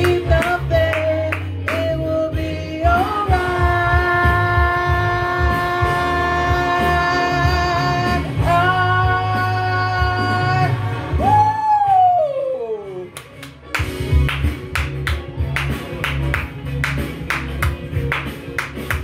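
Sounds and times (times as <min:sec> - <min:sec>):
bass beat: 0:00.0 - 0:12.4, 0:13.2 - 0:19.0
singer holding long notes: 0:00.0 - 0:13.1.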